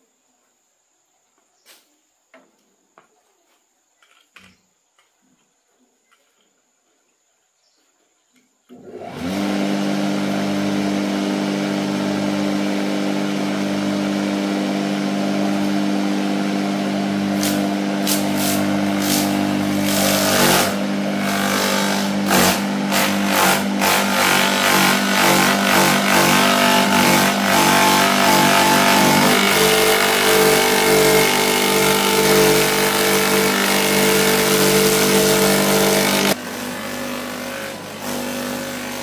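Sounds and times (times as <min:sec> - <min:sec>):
chopper motor humming: 0:17.0 - 0:39.0
stems shredded with sharp cracks: 0:17.4 - 0:26.4.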